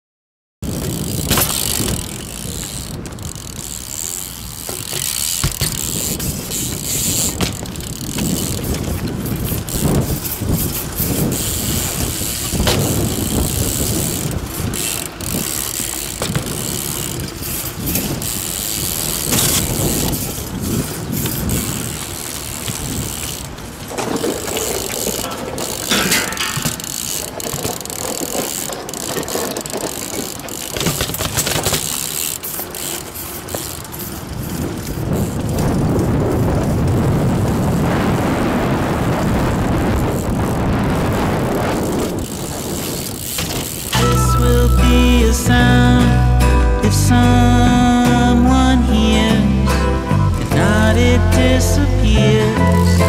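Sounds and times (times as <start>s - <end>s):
bike landing impacts: 0.6s - 36.1s, 41.8s - 44.0s
bike freewheel ratcheting: 0.6s - 37.9s, 39.0s - 49.6s
bike tyres rolling on concrete: 0.6s - 49.3s.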